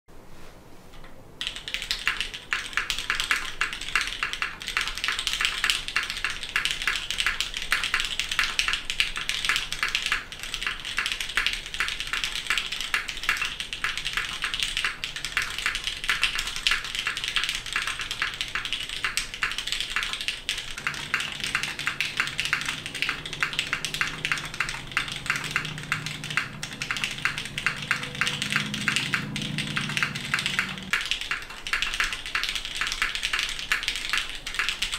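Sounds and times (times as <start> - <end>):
fast mechanical keyboard typing: 1.4 - 34.9.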